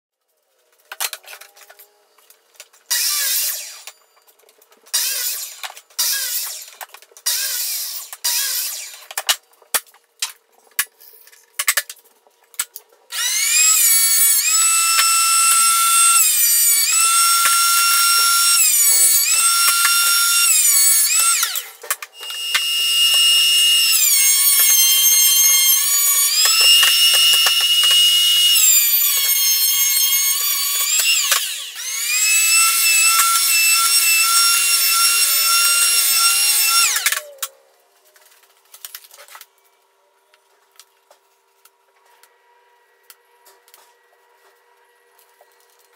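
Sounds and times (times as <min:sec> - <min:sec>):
thickness planer whining: 0:13.1 - 0:37.5.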